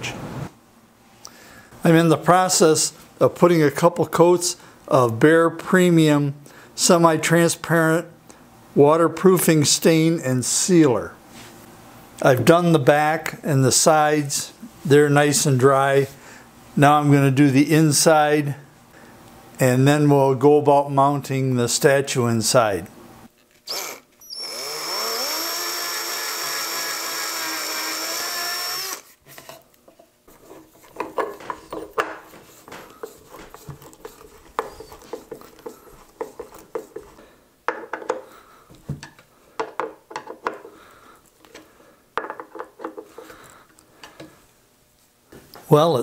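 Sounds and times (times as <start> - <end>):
cordless drill running: 23.7 - 29.1.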